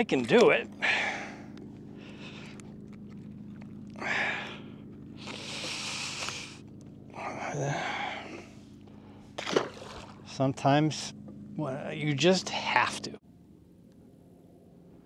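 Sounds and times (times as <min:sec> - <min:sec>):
steady low hum: 0:00.0 - 0:15.0
man breathing out heavily: 0:00.8 - 0:02.6, 0:04.0 - 0:06.6, 0:07.2 - 0:09.4.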